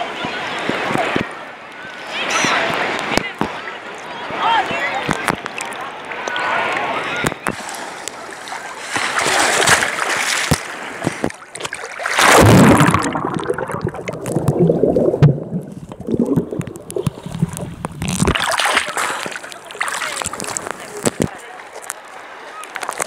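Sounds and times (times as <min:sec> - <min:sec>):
water sloshing against microphone: 0:05.1 - 0:23.0
loud splash: 0:08.4 - 0:20.7
muffled underwater sound: 0:10.7 - 0:23.0.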